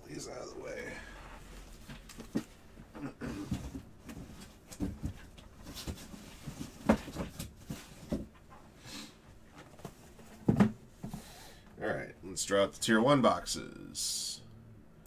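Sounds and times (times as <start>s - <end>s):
cardboard rustling: 3.4s - 8.4s
cardboard boxes knocking on table: 4.8s - 8.3s.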